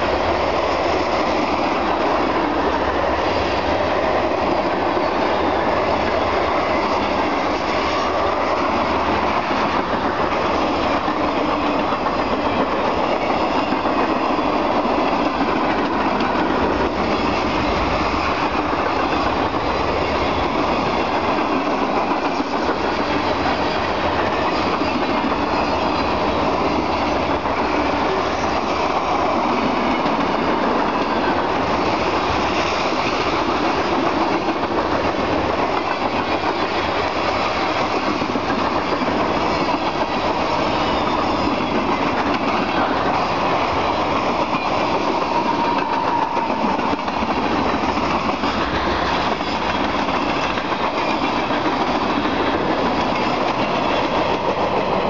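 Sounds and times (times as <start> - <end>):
train wheels clattering on rails: 0.0 - 55.0.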